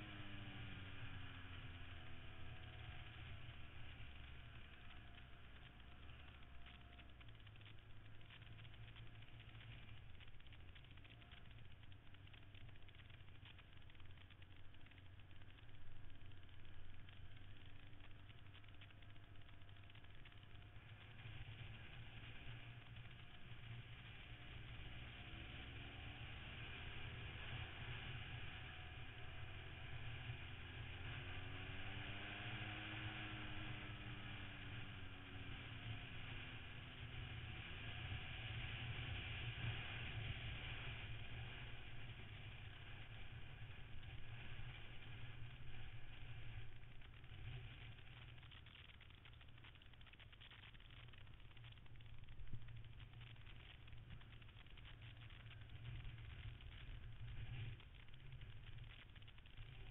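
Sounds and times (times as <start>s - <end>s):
motorcycle engine drone: 0.0s - 59.9s
wind and road noise: 20.6s - 59.9s.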